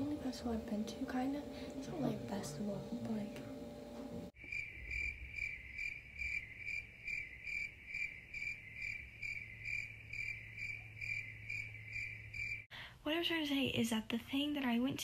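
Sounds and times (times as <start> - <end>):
crickets chirping: 4.4 - 12.7.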